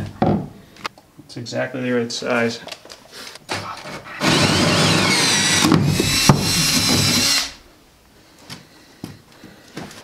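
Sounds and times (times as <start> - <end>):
drill with hole saw cutting wood: 4.2 - 7.7.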